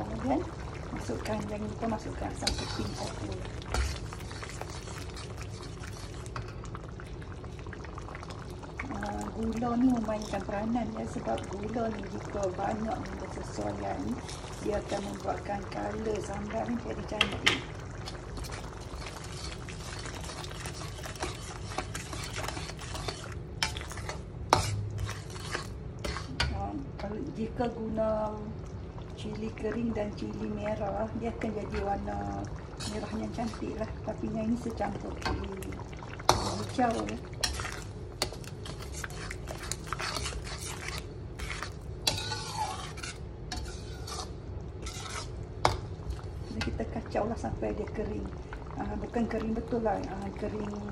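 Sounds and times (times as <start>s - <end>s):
thick sauce bubbling: 0.0s - 50.9s
metal spatula scraping pan: 2.2s - 6.4s, 18.4s - 26.6s, 32.8s - 33.7s, 36.3s - 45.8s.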